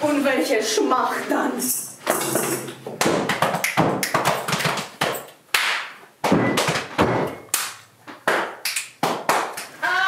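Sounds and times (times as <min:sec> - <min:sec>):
sharp percussive cracks: 0:02.2 - 0:09.8.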